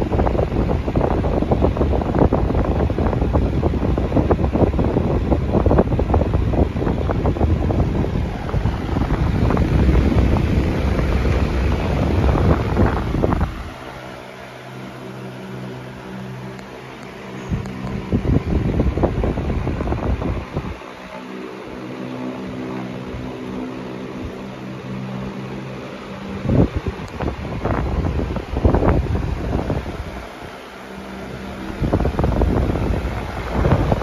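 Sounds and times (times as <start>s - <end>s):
fan blade whoosh: 0.0s - 34.0s
fan motor hum: 0.0s - 34.0s
fan wind rumble on microphone: 0.0s - 34.0s.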